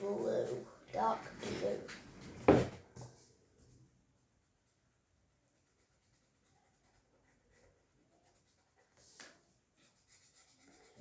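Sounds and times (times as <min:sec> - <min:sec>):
marker pen scratching on paper: 0:05.5 - 0:11.0.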